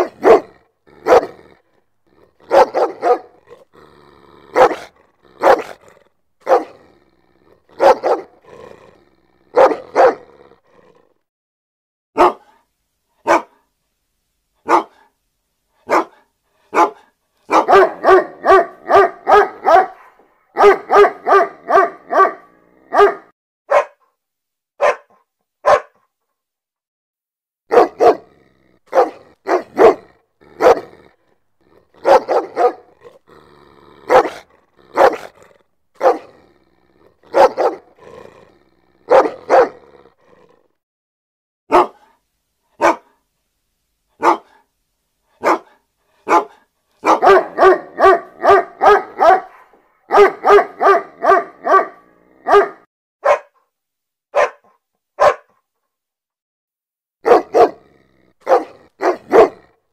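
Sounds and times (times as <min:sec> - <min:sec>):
large dog barking: 0:00.0 - 0:11.2, 0:12.2 - 0:13.7, 0:14.6 - 0:15.1, 0:15.8 - 0:24.1, 0:24.8 - 0:26.0, 0:27.7 - 0:40.7, 0:41.7 - 0:42.2, 0:42.8 - 0:43.2, 0:44.2 - 0:44.7, 0:45.3 - 0:53.6, 0:54.3 - 0:55.6, 0:57.2 - 0:59.8.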